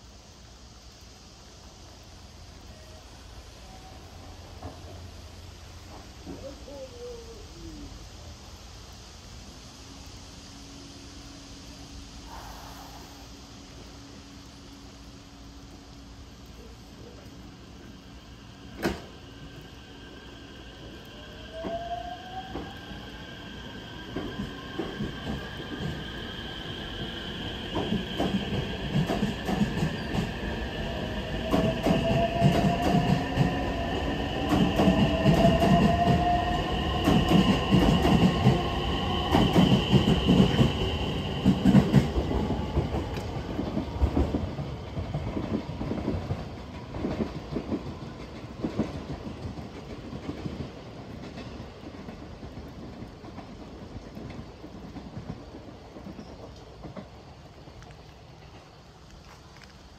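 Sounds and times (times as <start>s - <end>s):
train wheels clicking on rail joints: 4.2s - 6.5s, 18.6s - 20.4s, 21.0s - 59.9s.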